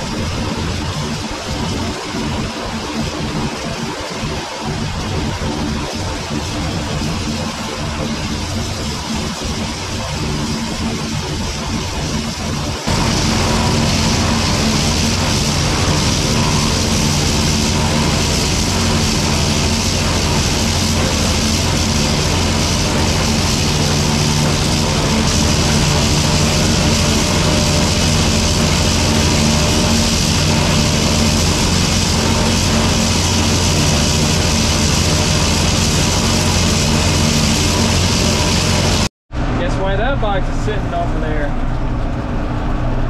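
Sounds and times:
forage harvester running: 0.0s - 43.0s
tractor engine drone: 0.0s - 43.0s.

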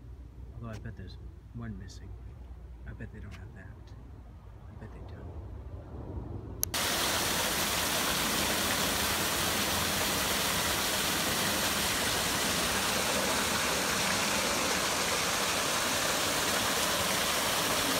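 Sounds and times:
waterfall rushing: 6.8s - 17.9s.

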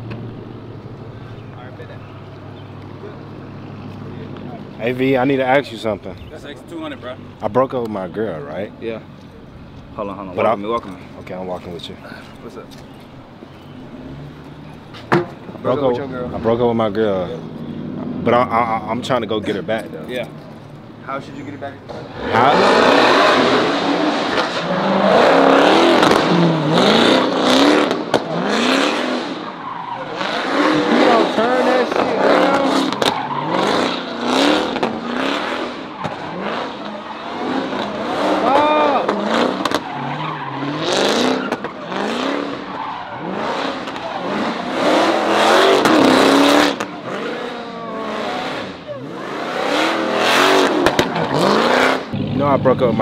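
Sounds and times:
car engine revving: 0.0s - 53.0s
loud overlapping voices: 1.0s - 27.6s, 29.4s - 53.0s
tyre squeal: 35.3s - 49.2s.

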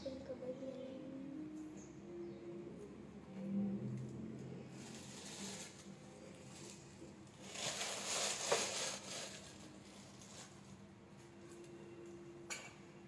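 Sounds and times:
plastic wrap crinkling: 4.7s - 10.8s.

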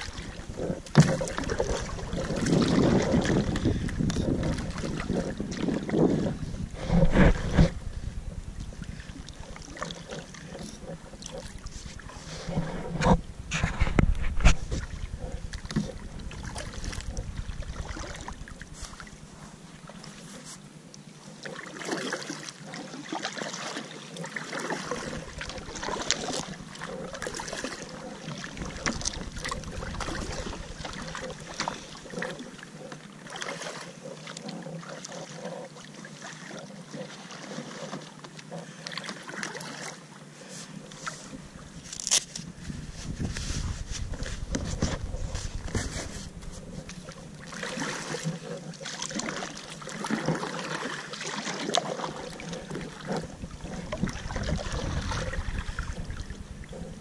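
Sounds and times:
wind rumble on microphone: 0.0s - 9.7s, 10.5s - 19.5s, 25.0s - 31.8s, 41.2s - 47.4s, 52.4s - 57.0s
paddle splashing water: 0.0s - 57.0s.

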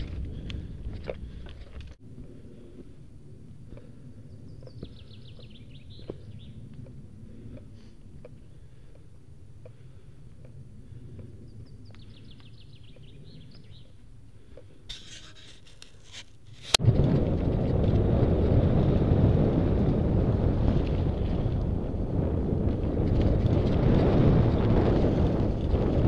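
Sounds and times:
wind buffeting microphone: 0.0s - 14.5s, 16.6s - 26.0s
bike tyres rolling on gravel: 15.0s - 26.0s.

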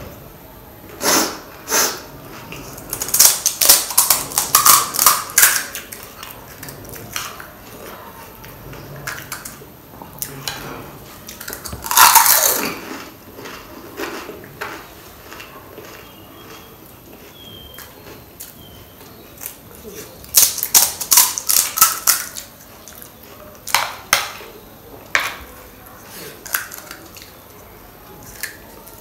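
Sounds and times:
crisp shells crunching in mouth: 2.7s - 7.5s, 11.3s - 18.7s, 20.2s - 22.5s.

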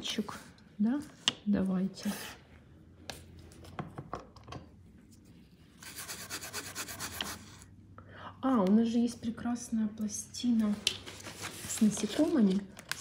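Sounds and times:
scratchy rubbing strokes: 5.8s - 7.6s.

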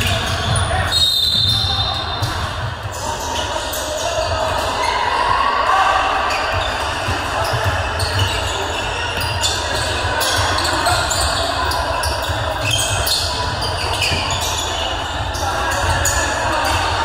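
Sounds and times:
basketball bouncing on court: 0.0s - 3.0s, 6.5s - 17.0s
voices echoing: 0.0s - 17.0s.

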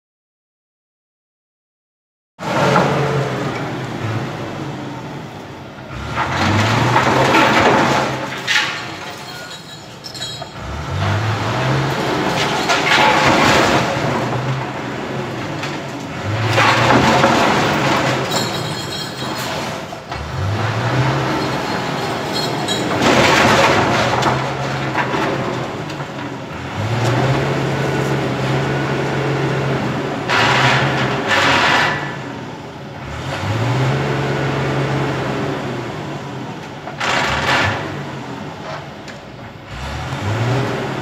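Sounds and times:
truck engine revving hard: 2.4s - 9.0s, 10.5s - 18.6s, 19.2s - 38.6s, 39.6s - 41.0s.

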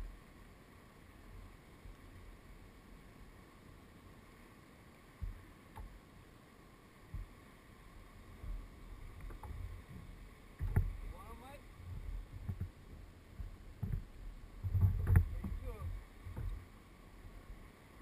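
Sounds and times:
water moving against kayak: 0.0s - 18.0s
wind rumble on microphone: 8.0s - 18.0s.

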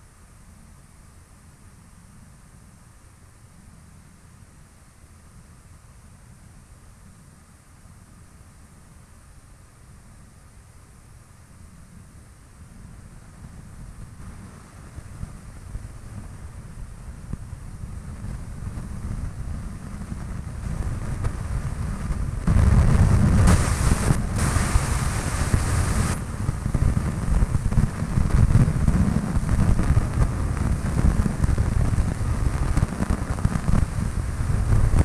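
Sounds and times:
airplane engine from cabin: 0.0s - 35.0s
wind rumble on microphone: 11.4s - 35.0s
burst of hiss: 20.7s - 35.0s.

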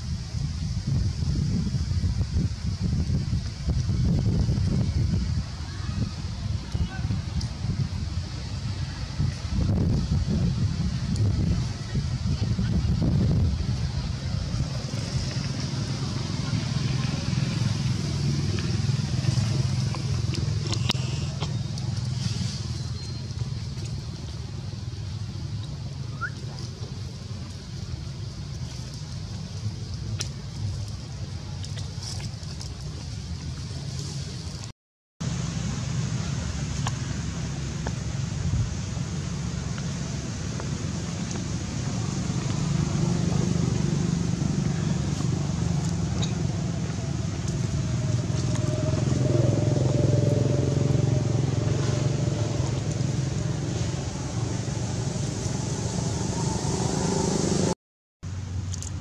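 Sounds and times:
low outdoor rumble with hiss: 0.0s - 59.0s
motor engine humming: 35.2s - 57.7s.

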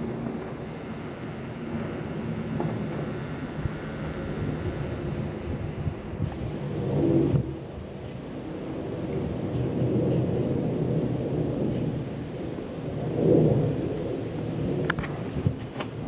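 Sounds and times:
jet airliner rumble overhead: 0.0s - 16.0s.

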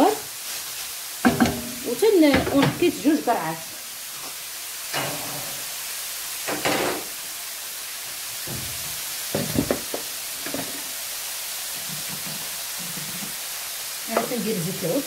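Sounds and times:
steady hiss: 0.0s - 15.0s
utensil knocking on steel pan: 1.2s - 2.8s.

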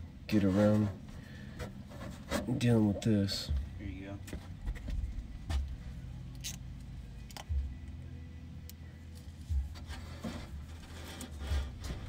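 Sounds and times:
low steady rumble: 0.0s - 12.0s.

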